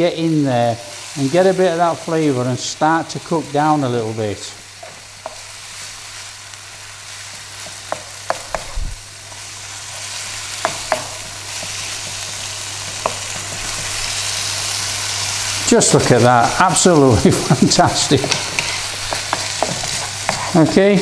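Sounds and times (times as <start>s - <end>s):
stir-fry sizzling in a pan: 0.0s - 21.0s
spatula knocking against pan: 10.6s - 14.0s, 18.2s - 20.5s.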